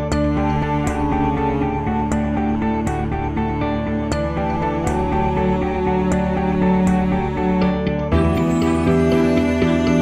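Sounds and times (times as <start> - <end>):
soft slow instrumental music: 0.0 - 10.0.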